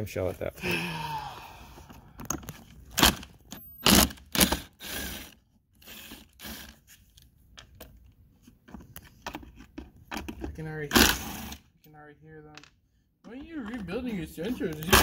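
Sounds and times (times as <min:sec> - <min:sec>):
cordless drill bursts: 0:03.8 - 0:06.8.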